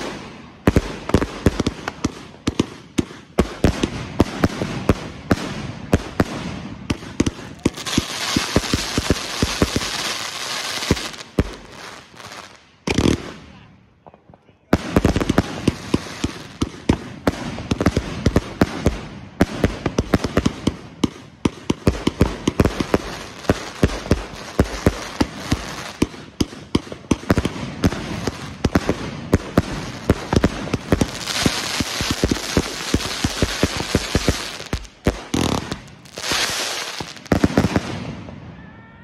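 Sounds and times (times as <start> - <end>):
firework cake firing shots: 0.0 - 12.1, 12.8 - 38.3
firework hiss: 7.0 - 13.4, 27.2 - 38.0.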